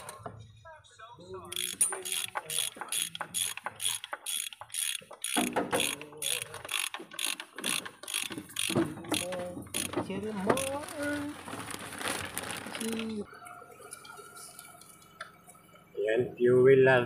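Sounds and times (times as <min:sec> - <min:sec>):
ratchet wrench clicking: 0:01.5 - 0:10.0.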